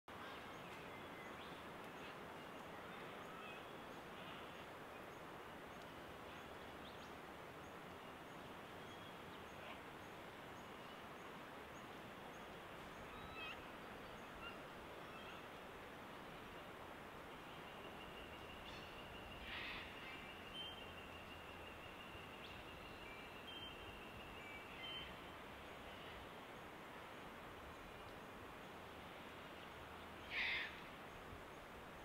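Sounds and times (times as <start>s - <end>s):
faint bird calls: 0.1s - 5.1s, 12.8s - 15.6s, 17.4s - 25.2s, 30.2s - 31.2s
steady background hiss: 0.1s - 32.0s
faint high tick: 5.8s - 6.0s.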